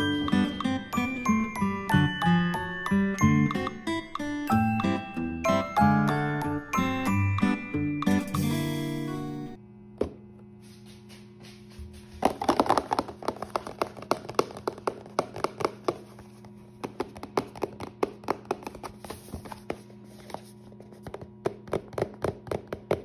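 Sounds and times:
fingers tapping cardboard box: 0:12.2 - 0:16.2, 0:16.8 - 0:19.0, 0:21.0 - 0:23.0.

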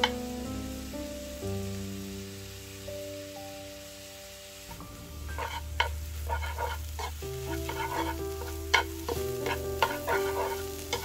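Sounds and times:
soft background music: 0:00.0 - 0:11.0
metal utensil scraping a pan: 0:04.7 - 0:11.0.

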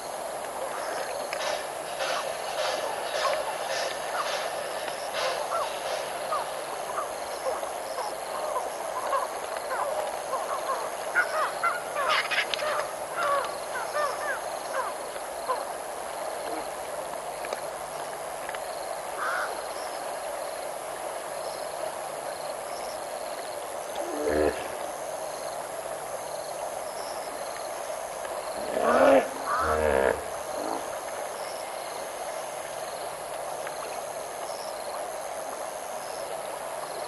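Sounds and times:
background chorus of calls: 0:28.6 - 0:30.8.

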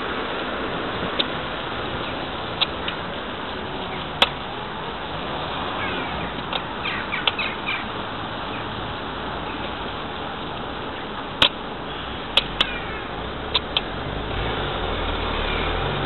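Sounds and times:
road and traffic noise: 0:00.0 - 0:16.0
sharp clicks: 0:04.2 - 0:04.4, 0:06.4 - 0:07.5, 0:11.4 - 0:11.6, 0:12.3 - 0:12.8, 0:13.5 - 0:14.0.

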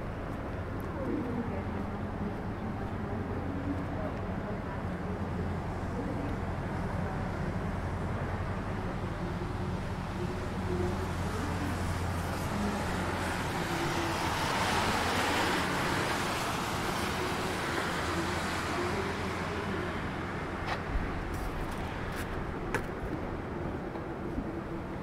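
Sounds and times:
low engine hum: 0:00.0 - 0:25.0.

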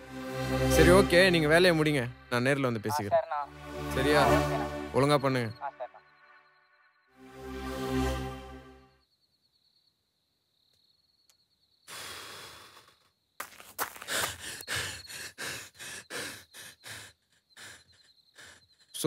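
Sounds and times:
crickets trilling: 0:08.9 - 0:19.0
breathy exhale: 0:11.9 - 0:13.1
footsteps on dirt: 0:13.4 - 0:14.7.

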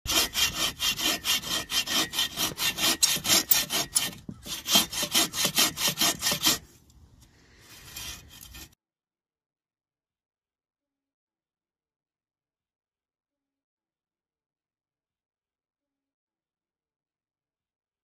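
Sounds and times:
bow saw rasping through log: 0:00.0 - 0:08.8.

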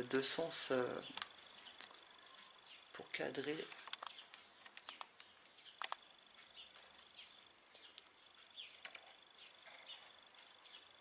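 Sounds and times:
thin steady high tone: 0:00.6 - 0:03.7
faint small bird chirps: 0:00.9 - 0:03.0, 0:03.6 - 0:11.0.

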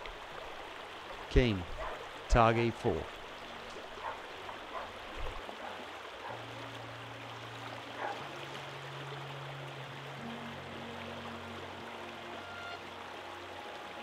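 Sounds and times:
river water running over rocks: 0:00.0 - 0:14.0
soft background music: 0:06.3 - 0:14.0.

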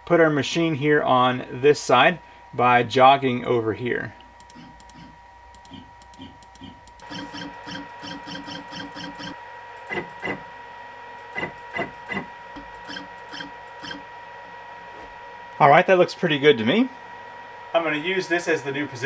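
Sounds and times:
steady high whine: 0:00.0 - 0:19.0
stepper motors buzzing: 0:04.0 - 0:19.0
faint clicks: 0:04.2 - 0:07.7.

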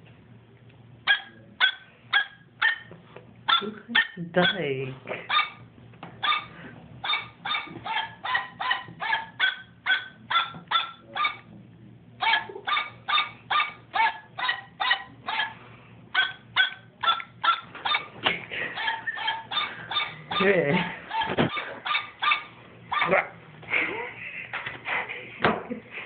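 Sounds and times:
tune in electronic dog barks: 0:01.0 - 0:02.9, 0:03.5 - 0:05.6, 0:06.2 - 0:11.5, 0:12.2 - 0:18.2, 0:18.8 - 0:23.4.

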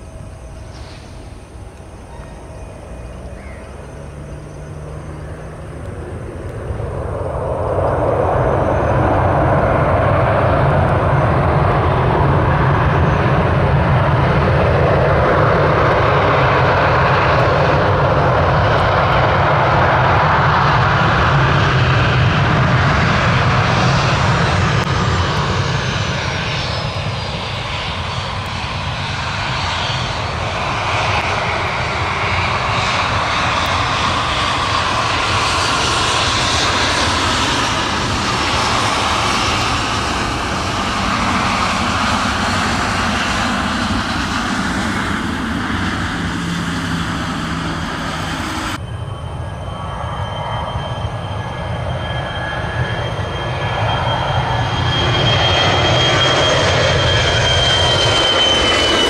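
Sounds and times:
airliner engines passing: 0:00.0 - 0:59.0
high engine whine: 0:00.0 - 0:59.0.

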